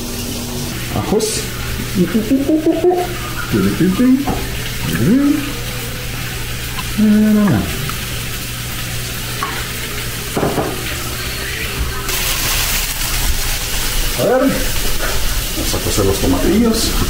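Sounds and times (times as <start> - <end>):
pork sizzling in a pan: 0.0 - 17.0
person humming: 4.9 - 8.0.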